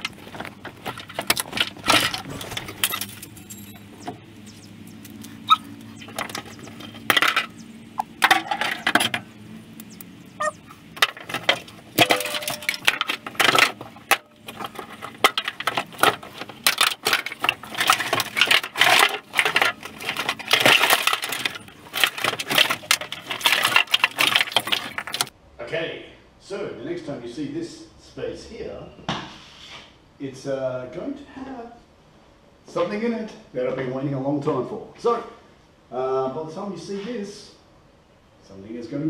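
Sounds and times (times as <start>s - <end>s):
plastic connectors clattering on metal: 0.0s - 4.0s, 6.0s - 9.3s, 11.0s - 25.3s.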